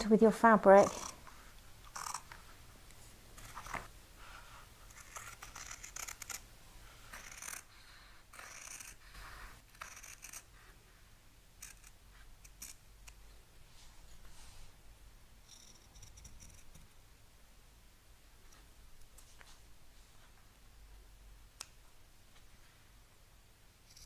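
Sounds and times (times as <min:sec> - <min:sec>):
scissors cutting fabric: 0:00.8 - 0:01.2, 0:04.9 - 0:06.4, 0:07.1 - 0:07.7, 0:08.3 - 0:10.5.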